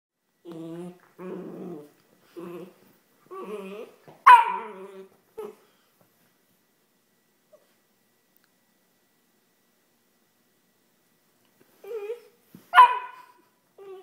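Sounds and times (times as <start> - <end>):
puppy growling whines: 0.4 - 5.6, 11.8 - 12.4, 13.2 - 14.0.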